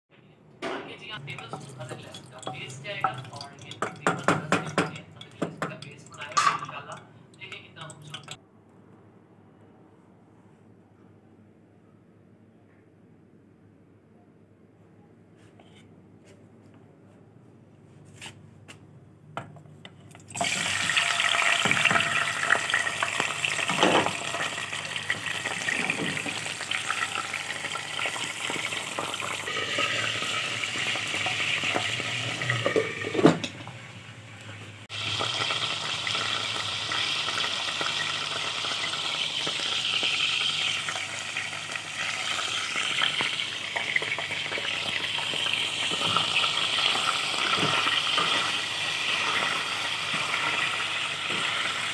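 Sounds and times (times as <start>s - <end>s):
chicken sizzling in hot oil: 20.4s - 33.2s, 34.8s - 51.9s.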